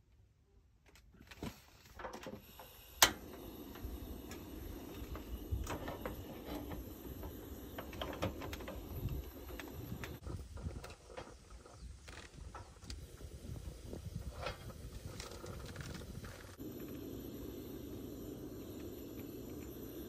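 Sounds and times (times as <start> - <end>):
burner flame rushing: 2.4 - 10.5, 12.4 - 20.0
gas stove ignition click: 3.0 - 3.5.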